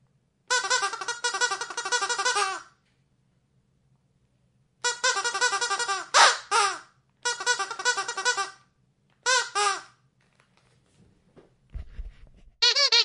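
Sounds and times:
squeaky dog toy squeaking: 0.5s - 2.7s, 4.8s - 8.6s, 9.2s - 10.0s, 12.6s - 13.0s.

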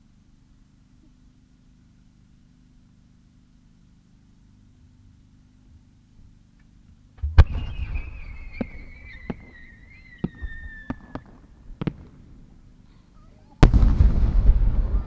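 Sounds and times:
firework whistle falling in pitch: 7.2s - 11.4s
firework launch thud: 7.2s - 12.2s, 13.6s - 15.0s
firework burst bang: 7.2s - 12.3s, 13.6s - 15.0s
firework cracks: 7.2s - 12.6s, 13.6s - 15.0s.

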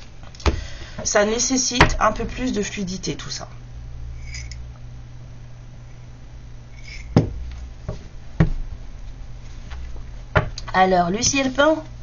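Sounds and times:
low hum: 0.0s - 12.0s
knocks on a tabletop: 7.2s - 7.4s.

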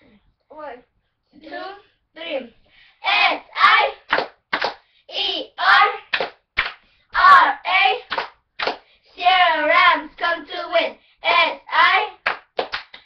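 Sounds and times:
girls chanting a cheer: 1.4s - 4.3s, 5.1s - 6.3s, 7.1s - 8.3s, 9.1s - 12.3s
sharp hand claps: 4.0s - 4.8s, 6.1s - 6.8s, 8.0s - 8.9s, 12.2s - 13.0s.

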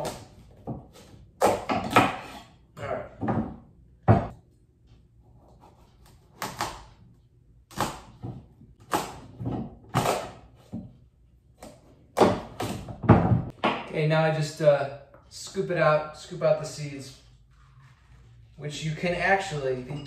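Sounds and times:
knife cutting squash: 5.2s - 7.1s.

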